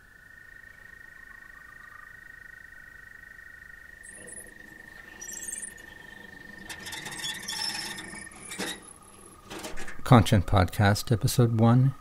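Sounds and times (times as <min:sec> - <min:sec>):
frogs trilling: 0:00.0 - 0:09.6
faint high chirps: 0:04.0 - 0:09.4.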